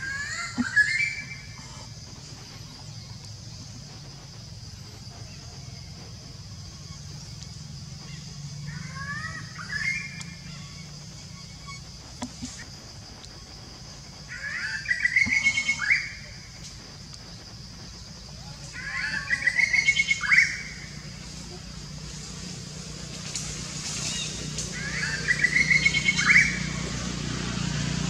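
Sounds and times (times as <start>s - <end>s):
wavering rising animal cries: 0.0s - 3.3s, 5.2s - 12.6s, 14.2s - 16.4s, 18.6s - 22.0s, 23.8s - 27.3s
steady high hiss: 0.0s - 28.0s.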